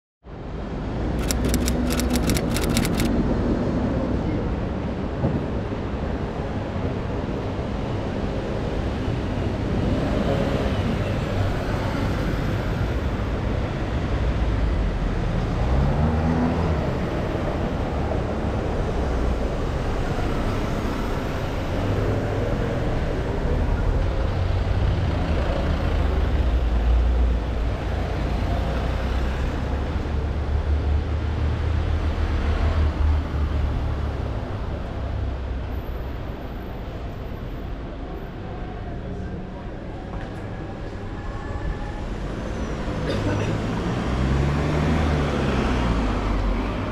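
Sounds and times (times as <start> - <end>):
vehicles passing: 42.0 - 46.9.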